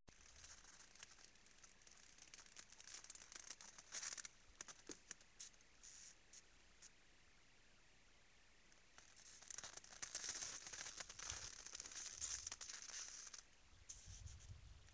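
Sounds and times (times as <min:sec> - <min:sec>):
animals crunching on frozen snow: 0:00.1 - 0:06.9, 0:08.8 - 0:14.9.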